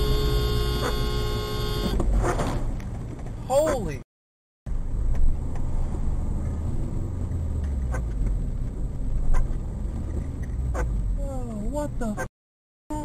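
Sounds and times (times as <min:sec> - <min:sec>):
vehicle rumble on wet road: 0:04.7 - 0:12.1.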